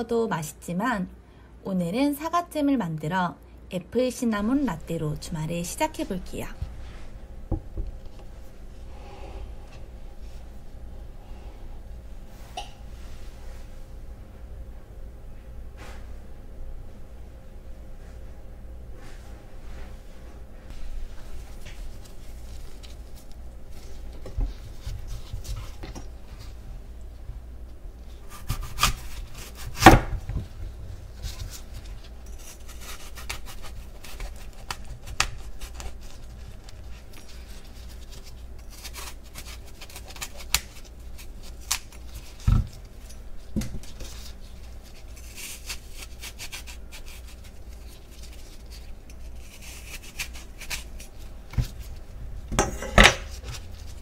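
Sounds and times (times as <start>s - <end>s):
knife crunching through apple: 28.2s - 30.1s, 31.2s - 43.0s, 43.8s - 51.9s.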